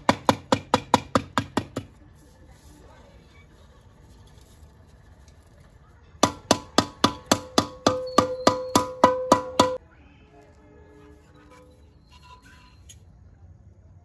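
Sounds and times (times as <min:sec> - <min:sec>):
hammer striking metal: 0:06.2 - 0:09.8.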